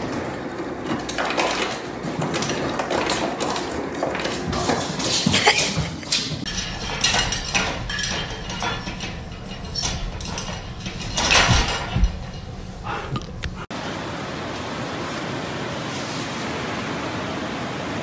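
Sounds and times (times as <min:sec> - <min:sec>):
metal gate clatter: 0:06.1 - 0:13.7
metal pet gate rattling: 0:06.4 - 0:13.7
dull thumps: 0:06.5 - 0:13.7.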